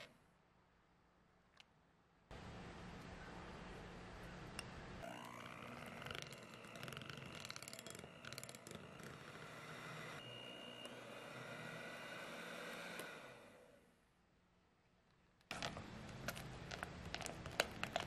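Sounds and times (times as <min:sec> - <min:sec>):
electric hand mixer whine: 0:05.0 - 0:14.0.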